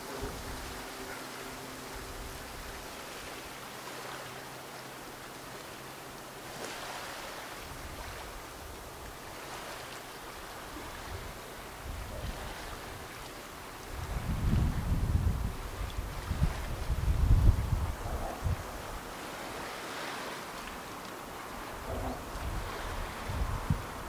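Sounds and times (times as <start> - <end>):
sea water washing on rocks: 0.0 - 4.4.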